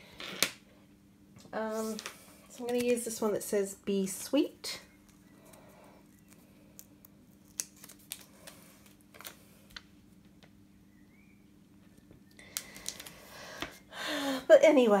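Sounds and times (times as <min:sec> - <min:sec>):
faint steady hum: 0:00.0 - 0:15.0
paper sticker clicks and rustles: 0:02.6 - 0:03.1, 0:06.2 - 0:09.9, 0:12.4 - 0:13.2.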